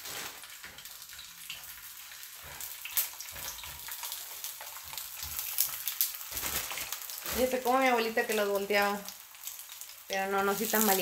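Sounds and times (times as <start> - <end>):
sharp frying pop: 0.0 - 11.0
tortillas sizzling in lard: 0.0 - 11.0.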